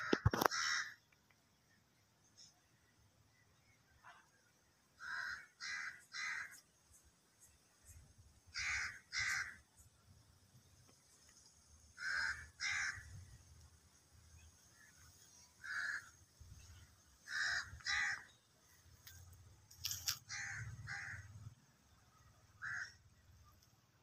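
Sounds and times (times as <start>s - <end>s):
crows cawing: 0.0s - 1.0s, 5.0s - 6.6s, 8.5s - 9.6s, 12.0s - 13.2s, 15.6s - 16.1s, 17.2s - 18.4s, 20.1s - 21.4s, 22.6s - 23.0s.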